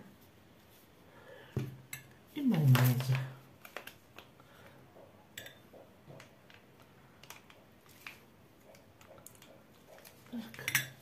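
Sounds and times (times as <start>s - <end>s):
small clicks and taps on plastic: 5.7s - 10.7s.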